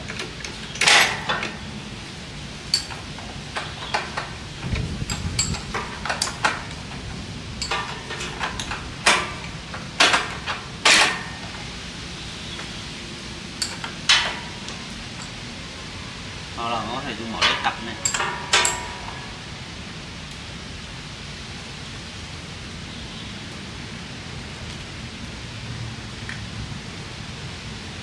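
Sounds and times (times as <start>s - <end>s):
spanner clinking on metal: 0.1s - 1.6s, 2.7s - 4.4s, 5.0s - 11.6s, 13.6s - 15.4s, 17.3s - 19.3s.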